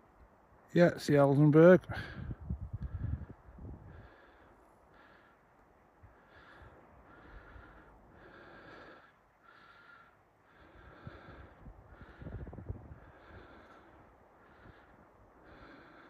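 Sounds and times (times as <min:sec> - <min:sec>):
wind rumbling on microphone: 0:01.8 - 0:04.4, 0:10.6 - 0:16.0
person breathing heavily: 0:01.9 - 0:16.0.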